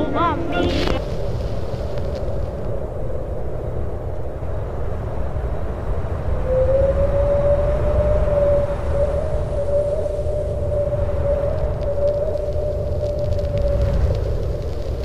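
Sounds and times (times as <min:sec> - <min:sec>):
long held tone: 0:00.0 - 0:01.1, 0:06.3 - 0:14.1
low ambient rumble: 0:00.0 - 0:06.4.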